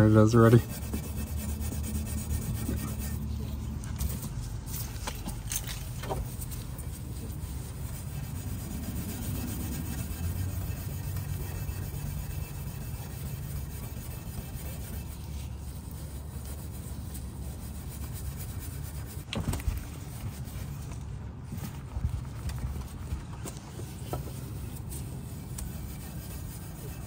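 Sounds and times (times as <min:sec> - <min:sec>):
steel wool scrubbing metal: 0:00.0 - 0:19.3, 0:23.8 - 0:27.0.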